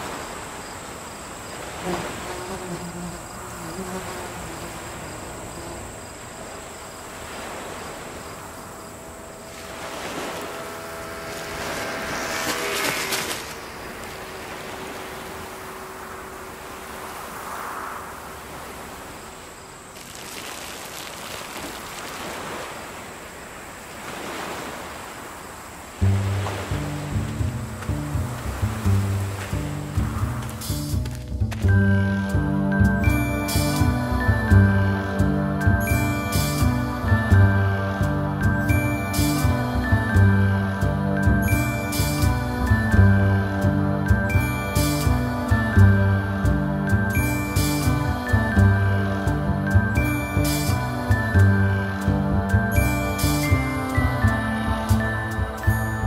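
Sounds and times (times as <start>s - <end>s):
rushes of noise: 0.0s - 43.6s
high insect buzz: 0.0s - 56.0s.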